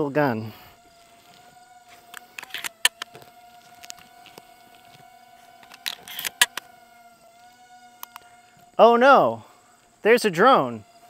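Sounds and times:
drone whine: 0.4s - 9.0s
shotgun handling clicks: 2.1s - 4.5s, 5.6s - 6.7s, 8.0s - 8.3s.

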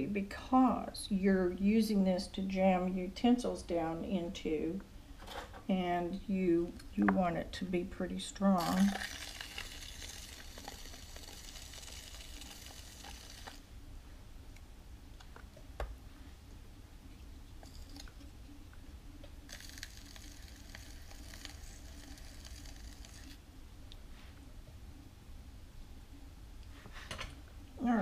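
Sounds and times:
potter's wheel low rumble: 19.5s - 23.4s.

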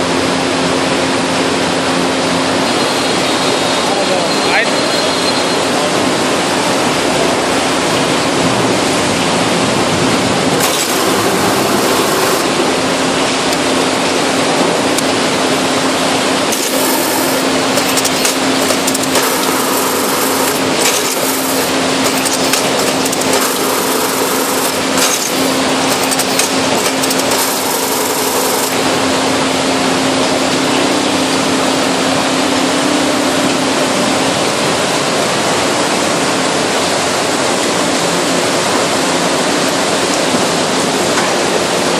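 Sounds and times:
baler hydraulics running: 5.5s - 30.6s
crackling and rattling bursts: 9.8s - 12.6s, 16.5s - 28.9s.

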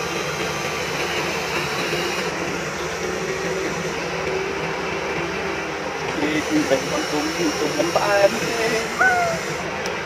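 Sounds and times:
toy electric motors whirring: 0.0s - 2.4s, 6.2s - 10.0s.

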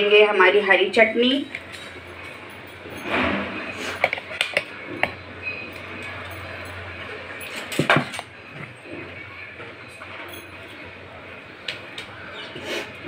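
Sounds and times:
spoon and dishes clinking: 1.5s - 9.1s.

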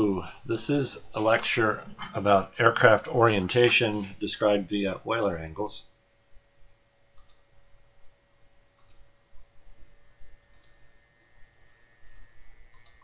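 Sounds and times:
faint steady whine: 0.0s - 13.0s
computer mouse clicking: 7.2s - 7.5s, 8.8s - 9.6s, 10.5s - 10.8s, 12.7s - 13.0s.

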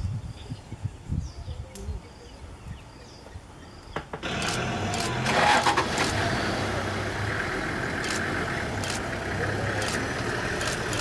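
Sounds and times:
vehicle engine idling: 4.2s - 11.0s.

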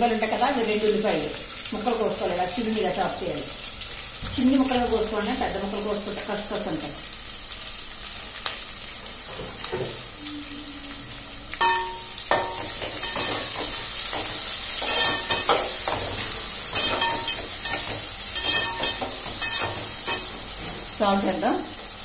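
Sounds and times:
onions sizzling in hot oil: 0.0s - 22.0s
spatula scraping pot: 12.4s - 20.8s.

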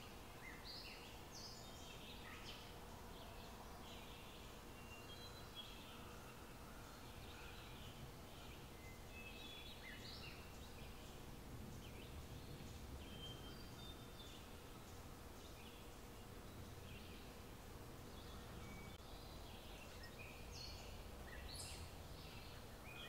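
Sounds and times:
faint birdsong chirps: 0.0s - 23.0s
steady low background noise: 0.0s - 23.0s.

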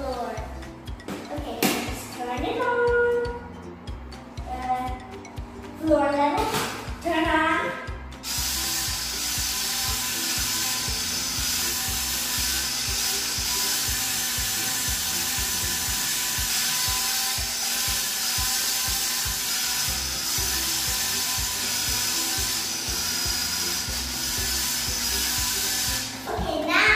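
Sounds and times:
toy car motor whirring: 8.2s - 26.7s.

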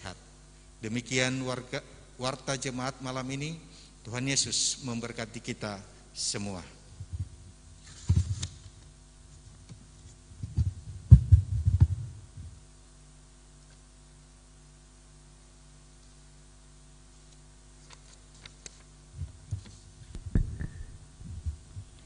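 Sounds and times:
low steady hum: 0.0s - 22.0s
microphone thumping on wood: 8.0s - 8.5s, 10.4s - 12.6s, 19.2s - 22.0s.

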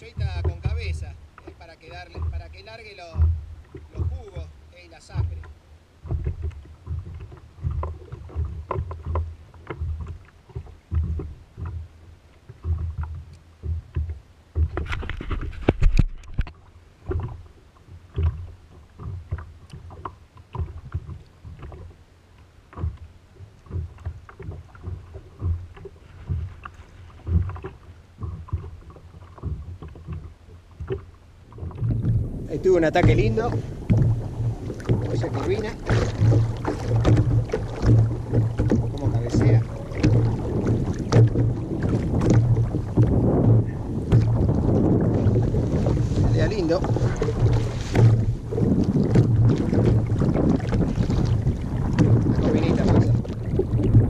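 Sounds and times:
waves slapping against kayak hull: 0.0s - 54.0s.

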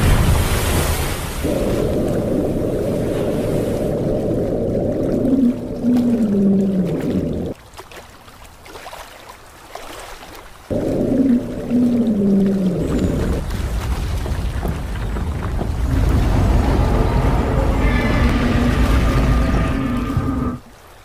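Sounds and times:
deep sea monster roar: 1.4s - 7.6s, 10.7s - 13.4s, 15.4s - 20.7s
quiet rumble: 12.6s - 20.7s.

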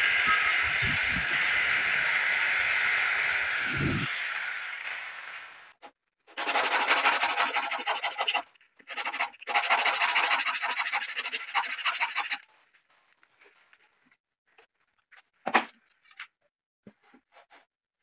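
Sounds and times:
jigsaw motor: 0.0s - 5.7s
sandpaper scraping wood edge: 6.4s - 12.4s.

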